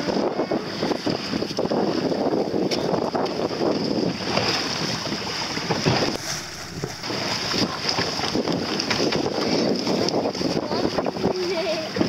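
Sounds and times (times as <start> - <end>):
water splashing along boat hull: 0.0 - 12.0
wind buffeting microphone: 0.0 - 12.0.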